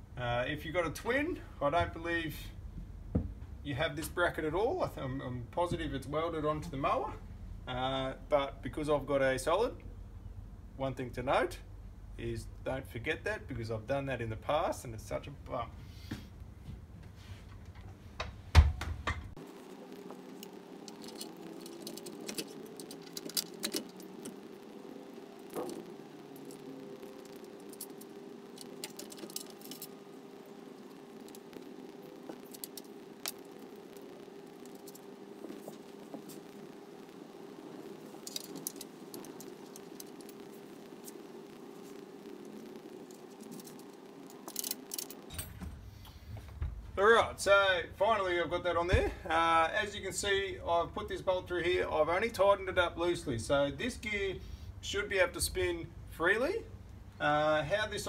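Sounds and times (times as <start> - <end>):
steady hum: 0.0 - 58.0
metal parts clicking and knocking: 20.9 - 24.4, 28.6 - 29.9, 44.4 - 45.5.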